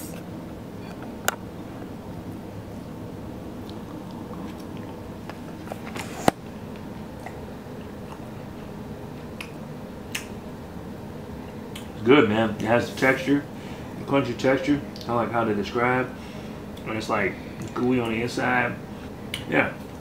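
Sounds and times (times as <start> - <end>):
low room hum: 0.0 - 20.0
quiet crunchy chewing: 3.6 - 6.2, 6.8 - 8.7.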